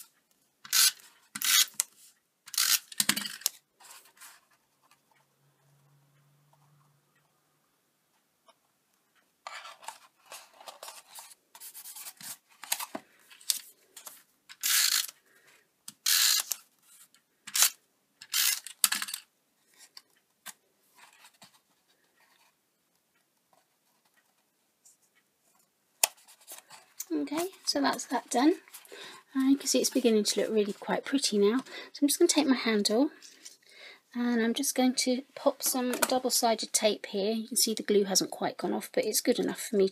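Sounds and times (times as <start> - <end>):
tape runner rasping on card: 0.7 - 1.8, 2.5 - 3.5, 14.6 - 15.2, 15.9 - 16.6, 17.5 - 19.2
paper rubbing and rustling: 9.5 - 14.1.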